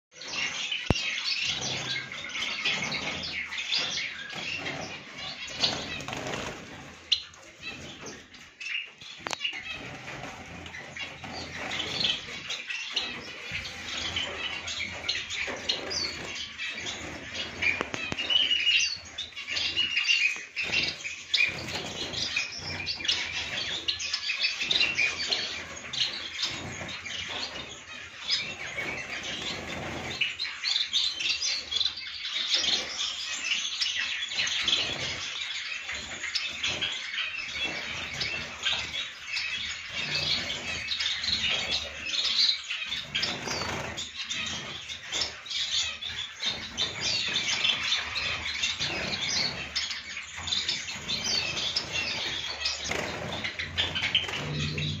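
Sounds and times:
finches chirping: 0.2 - 55.0
wings fluttering: 46.4 - 55.0.

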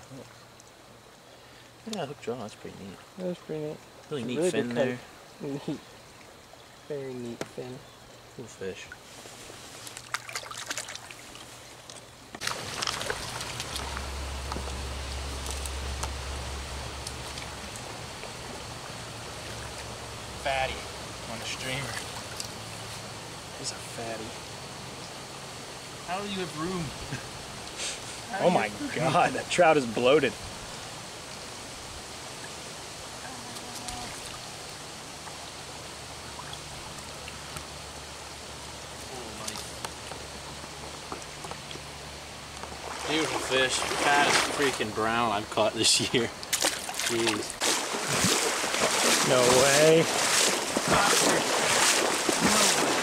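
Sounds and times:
water trickling and splashing: 0.0 - 53.0
stream current rushing: 3.9 - 53.0
fish splashing at surface: 9.8 - 11.5, 12.4 - 15.9, 46.5 - 53.0.

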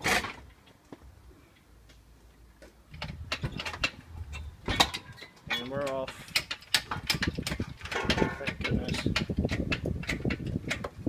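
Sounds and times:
metallic clanks and knocks: 2.9 - 11.0.

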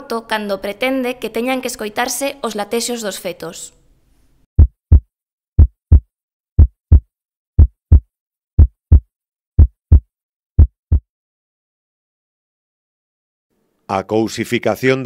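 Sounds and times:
heartbeat thumps: 4.6 - 11.0.

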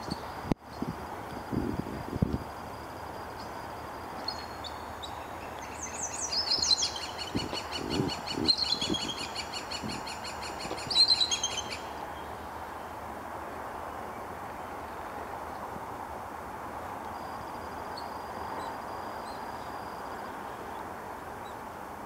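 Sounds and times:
eagle chittering call: 4.3 - 12.3.

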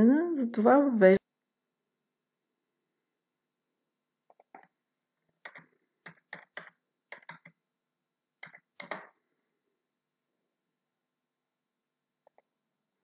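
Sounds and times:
typing on computer keyboard: 4.3 - 4.8, 5.4 - 7.6, 8.4 - 9.2, 12.2 - 12.5.

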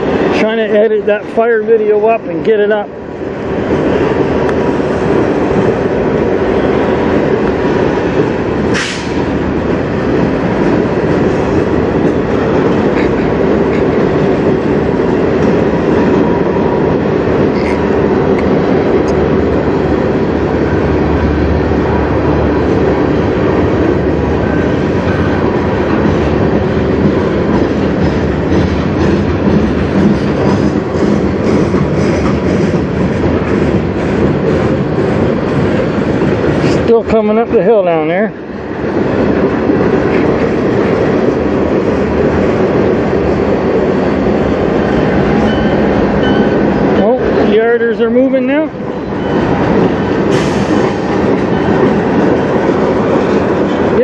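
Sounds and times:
train wheels rumbling and rattling: 0.0 - 54.0
wheel clacks over rail joints: 7.4 - 16.2, 24.6 - 37.4
brief sharp noise: 8.7 - 9.3.

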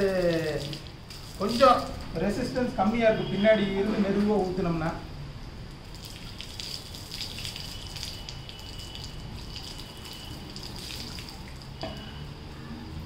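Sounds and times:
water pouring from a mug: 5.8 - 12.2.

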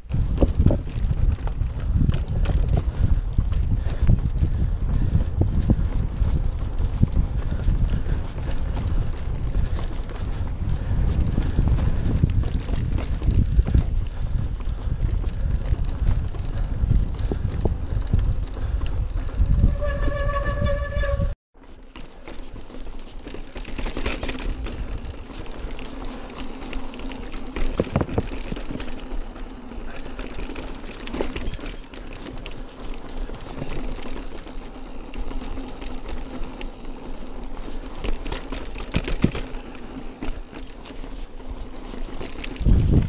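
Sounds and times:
bike rattling over flagstones: 0.0 - 43.0.

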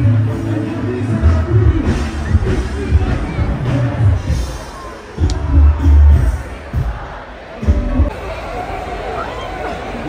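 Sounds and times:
loud music with heavy bass: 5.2 - 6.9.

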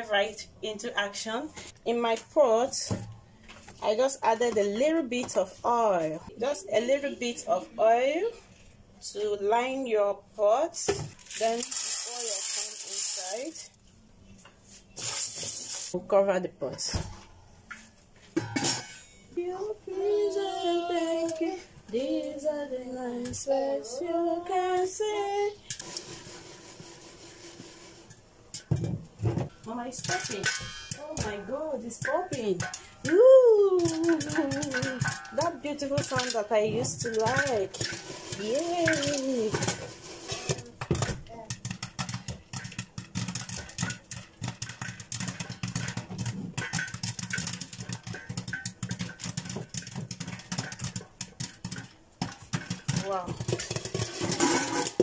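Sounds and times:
popcorn kernels popping: 11.1 - 13.7, 29.6 - 55.0
high voice singing: 19.4 - 25.4.

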